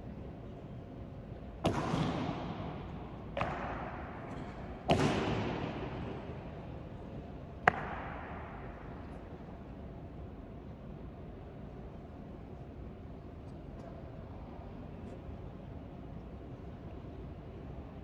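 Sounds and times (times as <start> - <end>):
sharp cracks with echo: 1.5 - 9.2.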